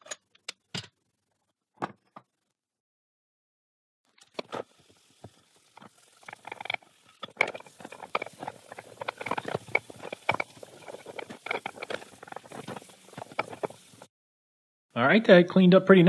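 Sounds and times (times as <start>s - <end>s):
metal parts knocking and clinking: 6.2s - 14.0s.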